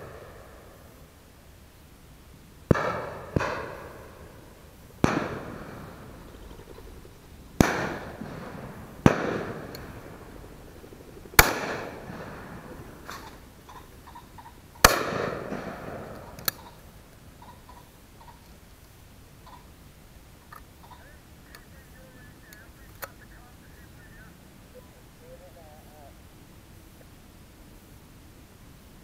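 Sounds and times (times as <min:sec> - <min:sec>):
shotgun shots: 0:02.7 - 0:04.3, 0:05.0 - 0:06.8, 0:07.6 - 0:13.8, 0:14.8 - 0:16.8
quiet click: 0:22.5 - 0:23.2.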